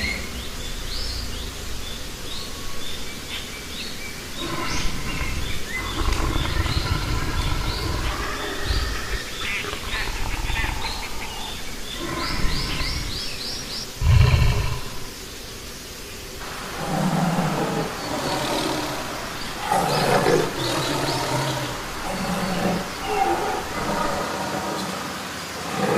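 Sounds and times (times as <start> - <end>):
big cat roaring and growling: 4.4 - 15.2, 16.4 - 25.9.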